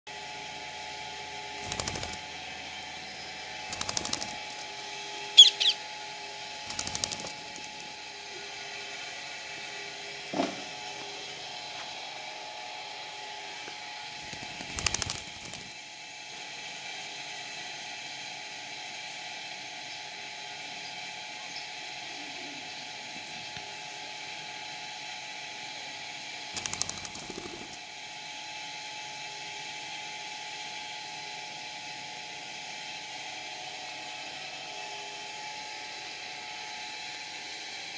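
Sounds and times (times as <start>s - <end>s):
mechanical hum: 0.1s - 37.9s
parakeets calling harshly: 3.1s - 6.0s.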